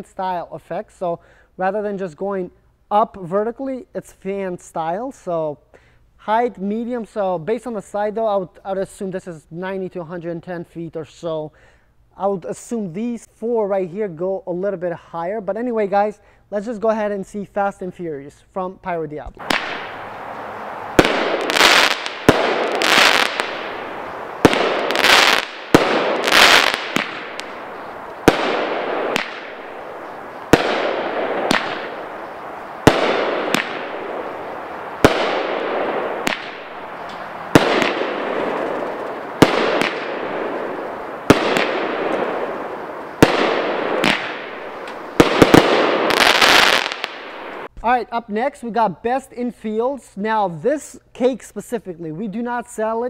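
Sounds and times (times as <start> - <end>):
fireworks bangs with hiss: 19.4 - 47.7.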